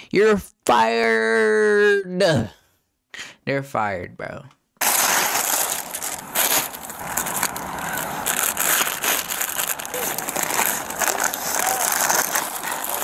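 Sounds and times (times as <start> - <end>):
plastic bags rustling: 4.8 - 13.0.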